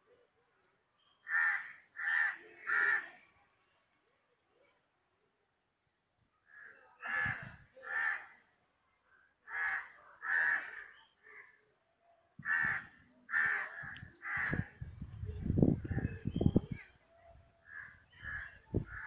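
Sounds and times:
crow cawing: 0:01.3 - 0:03.1, 0:06.5 - 0:08.3, 0:09.5 - 0:11.6, 0:12.4 - 0:14.7, 0:17.6 - 0:19.0.

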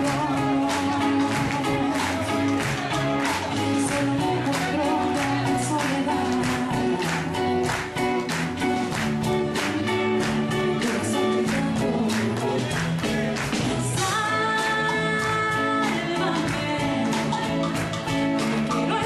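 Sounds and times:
person singing: 0:00.0 - 0:08.2, 0:09.8 - 0:19.0
bass guitar: 0:00.0 - 0:19.0
drum kit beat: 0:00.0 - 0:19.0
electric guitars: 0:00.0 - 0:19.0.

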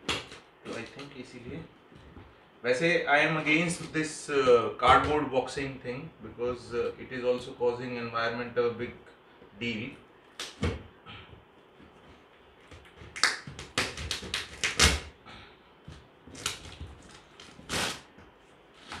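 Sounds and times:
tape ripping and scraping: 0:13.1 - 0:15.1, 0:16.3 - 0:18.1.

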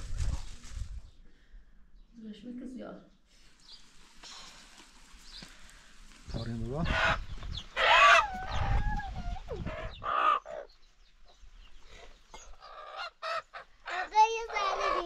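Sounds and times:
chickens clucking: 0:06.4 - 0:15.0.

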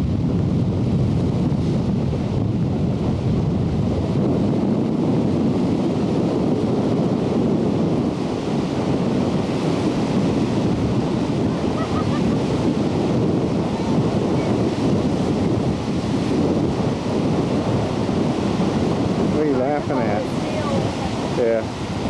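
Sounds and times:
wind buffeting microphone: 0:00.0 - 0:22.0
surf breaking on rocks: 0:07.5 - 0:22.0.

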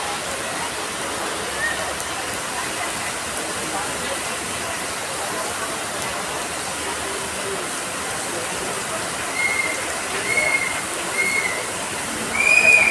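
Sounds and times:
heavy rain on flooded ground: 0:00.0 - 0:12.9
high whistle-like notes: 0:12.3 - 0:12.9.

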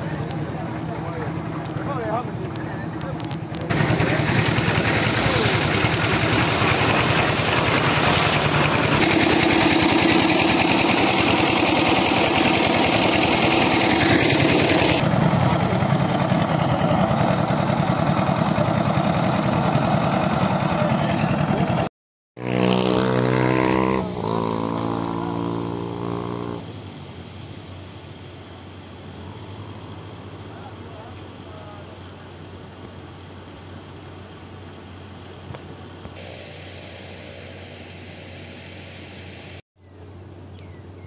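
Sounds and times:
loud engine running: 0:00.0 - 0:26.6
rushing noise: 0:36.2 - 0:39.6.

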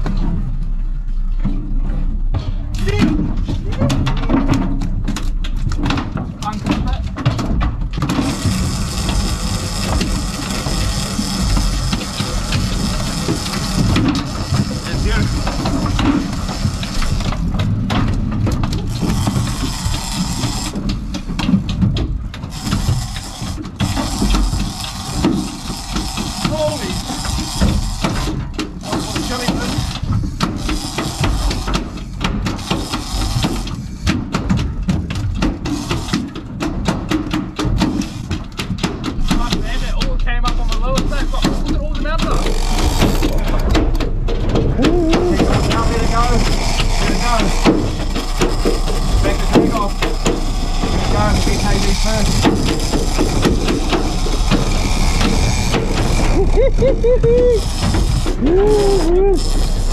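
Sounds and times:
boat engine rumbling: 0:00.0 - 0:59.9
knocks and clicks: 0:01.4 - 0:59.9.

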